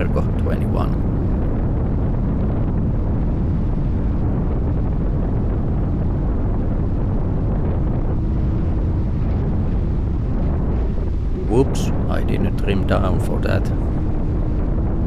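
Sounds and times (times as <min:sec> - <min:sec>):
wind buffeting microphone: 0:00.0 - 0:15.0
race boat engine rumble: 0:07.7 - 0:15.0.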